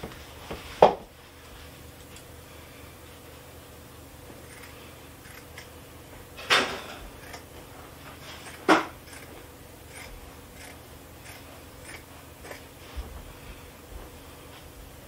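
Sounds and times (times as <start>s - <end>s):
scissors clacking: 9.9s - 12.6s.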